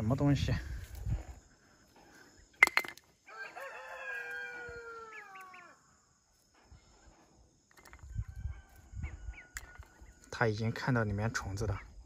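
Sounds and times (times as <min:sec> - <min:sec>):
rooster crowing: 0:03.3 - 0:05.8, 0:08.0 - 0:09.8.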